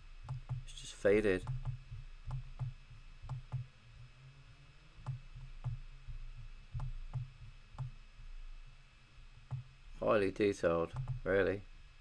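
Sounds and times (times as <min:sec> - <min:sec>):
computer mouse clicking: 0:01.4 - 0:03.7, 0:06.8 - 0:07.9, 0:09.5 - 0:09.7, 0:10.9 - 0:11.2.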